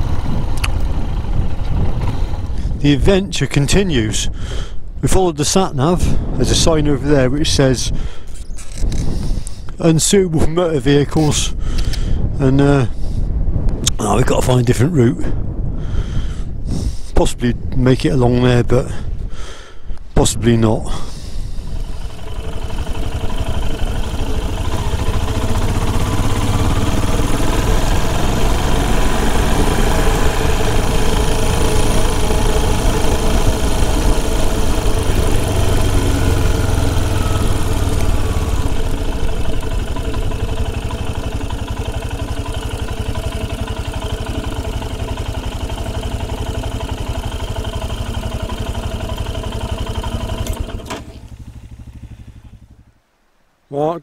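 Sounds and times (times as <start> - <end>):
motorcycle engine running: 0.0 - 4.6, 20.9 - 53.1.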